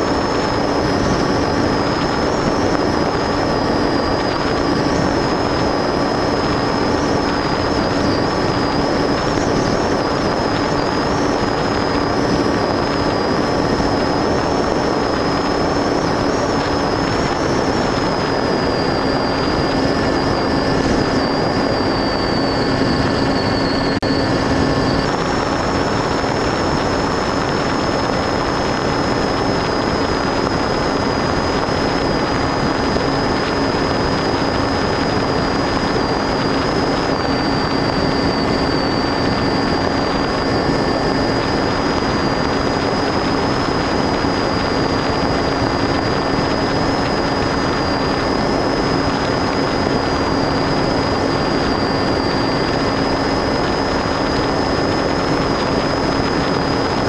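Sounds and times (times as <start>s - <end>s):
electric motor and propeller droning: 0.0s - 57.0s
thin high whine: 0.0s - 57.0s
wind noise: 0.0s - 57.0s.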